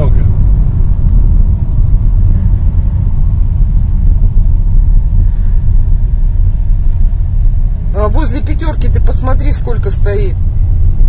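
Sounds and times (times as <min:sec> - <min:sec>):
car engine: 0:00.0 - 0:11.0
road noise: 0:00.0 - 0:11.0.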